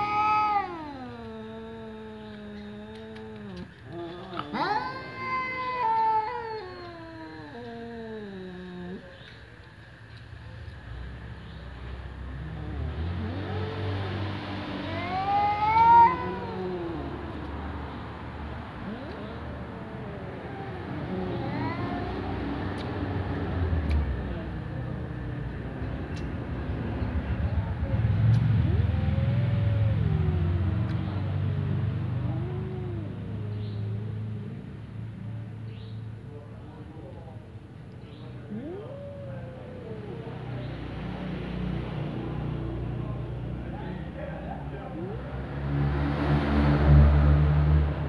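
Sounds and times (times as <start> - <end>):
cat meowing: 0.0 - 9.3, 12.5 - 24.5, 28.3 - 31.5, 32.1 - 34.8, 38.4 - 40.8.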